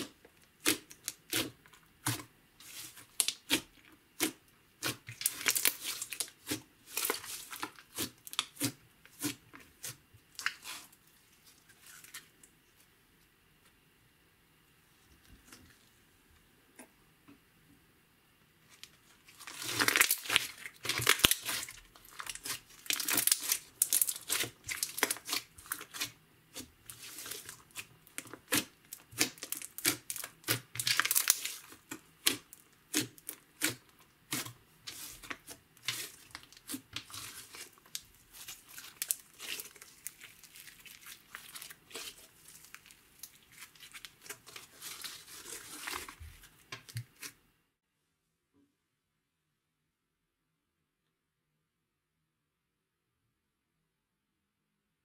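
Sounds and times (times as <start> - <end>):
slime crackling and popping: 0.0 - 10.9, 19.2 - 47.3.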